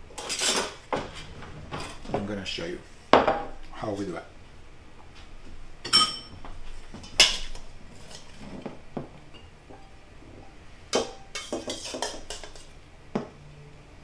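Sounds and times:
metal tongs clanking on steel bowl: 10.9 - 12.7.

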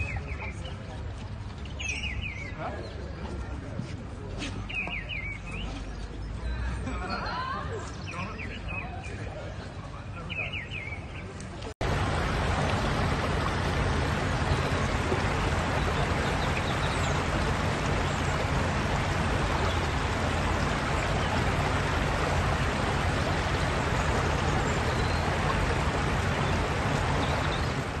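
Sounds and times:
water rushing across road: 11.8 - 28.0.

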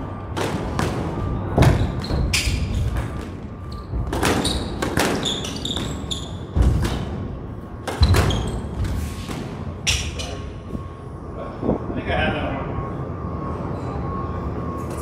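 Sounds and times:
squash ball struck by rackets: 0.3 - 3.3, 4.0 - 9.6
sneakers squeaking: 0.4 - 10.9.

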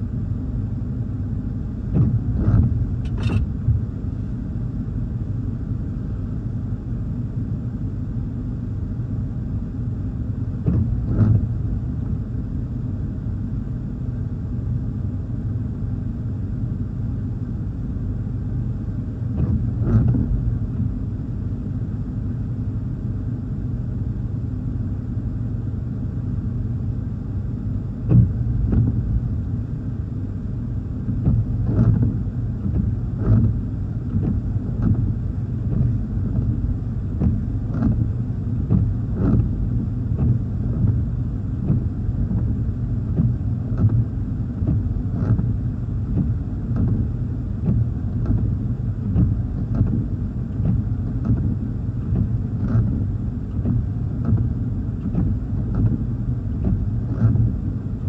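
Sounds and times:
rain against a car: 1.9 - 3.9, 10.6 - 12.1, 30.8 - 58.0
windshield wipers knocking: 1.9 - 3.9, 10.6 - 11.4, 28.1 - 29.2, 31.0 - 57.6.

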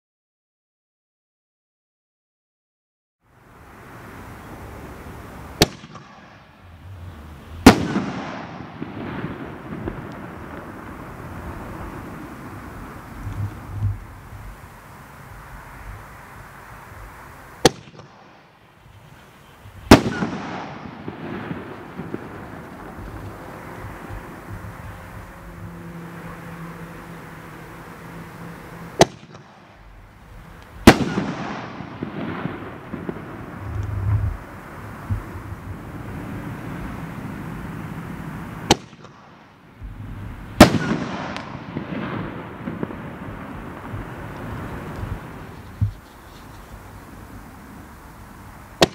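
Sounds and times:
faint firework crackles: 3.4 - 48.9
firework launch report: 3.4 - 48.9
firework shell bursting: 5.0 - 18.7, 19.7 - 35.8, 38.6 - 46.8.

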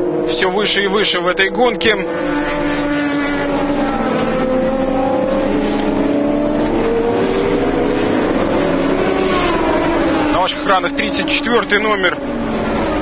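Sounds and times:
race car engines at high revs: 0.0 - 13.0.

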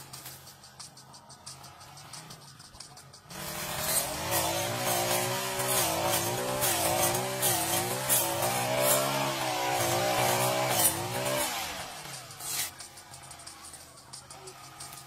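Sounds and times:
brush cutter engine running: 3.3 - 15.0.

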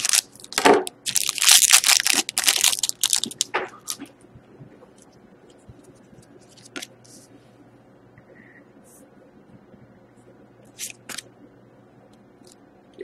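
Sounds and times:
foil wrapper tearing and crinkling: 0.0 - 4.1.

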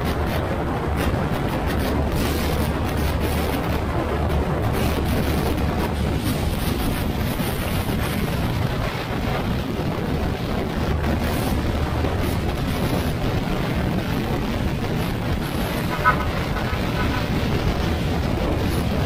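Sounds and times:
wind on microphone: 0.0 - 19.0
scooter engine running: 11.0 - 19.0.

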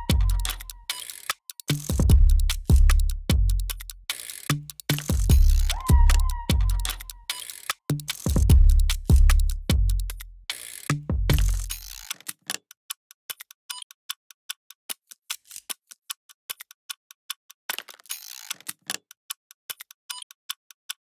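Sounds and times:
bass-heavy music hit: 0.0 - 0.6, 2.0 - 3.7, 8.3 - 10.1.

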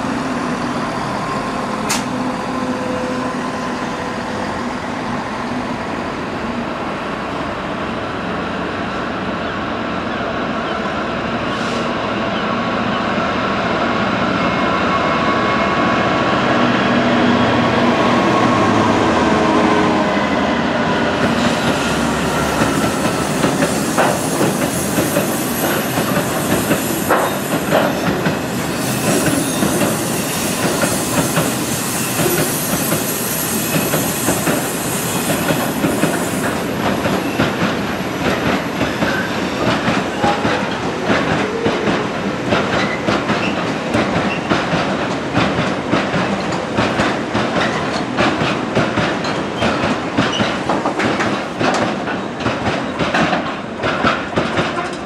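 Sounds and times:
diesel locomotive engine: 0.0 - 55.0
train wheels clicking over rail joints: 1.8 - 2.3, 21.2 - 55.0
hiss: 21.3 - 36.6.

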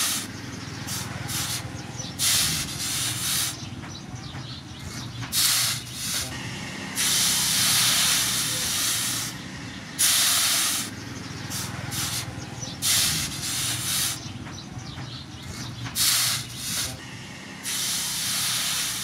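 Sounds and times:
hot blade hissing in water: 17.6 - 19.0.

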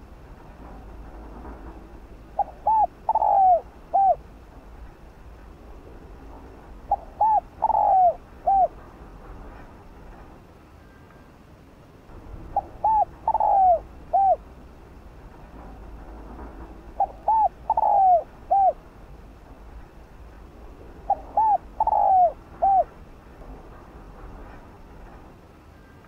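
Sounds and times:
dove cooing: 2.3 - 4.2, 6.9 - 8.8, 12.4 - 14.5, 16.9 - 18.8, 21.0 - 23.0.

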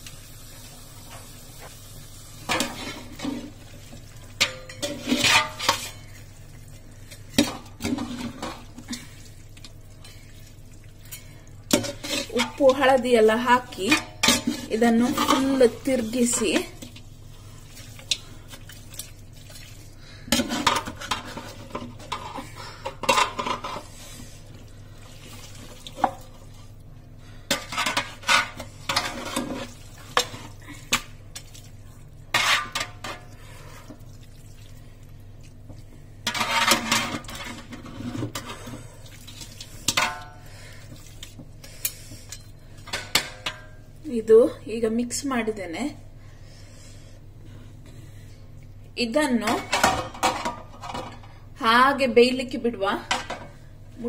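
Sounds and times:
metal spoon scraping metal pot: 4.4 - 6.1, 11.1 - 16.8, 27.5 - 30.4.

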